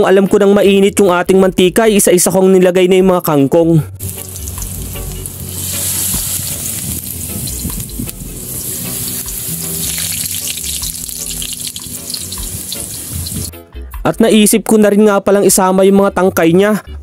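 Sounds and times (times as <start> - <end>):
leaves deep-frying in oil: 4.0 - 13.6.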